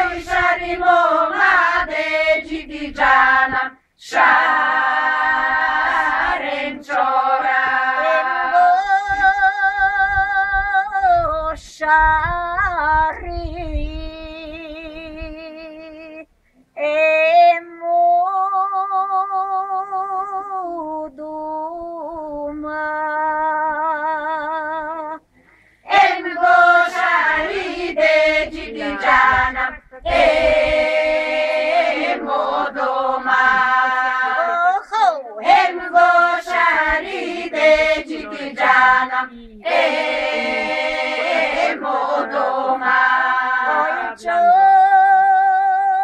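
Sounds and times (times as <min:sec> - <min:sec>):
woman singing unaccompanied: 0:00.0 - 0:25.2, 0:25.9 - 0:46.0
singer breathing in: 0:25.3 - 0:25.9.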